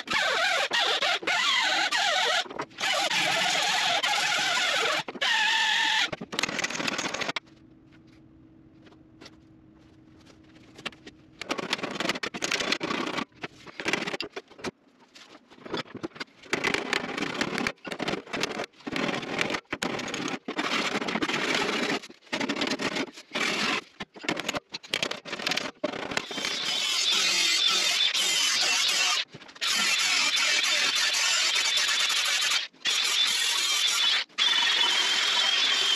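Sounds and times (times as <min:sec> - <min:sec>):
faint steady hum: 0:07.4 - 0:11.9
power grinder grinding metal: 0:26.2 - 0:35.9.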